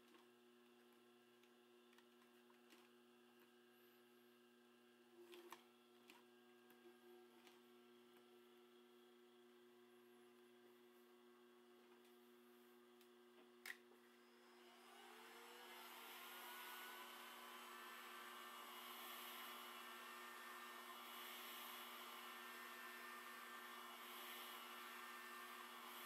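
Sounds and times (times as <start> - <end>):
heat gun fan blowing hiss: 14.4 - 26.0.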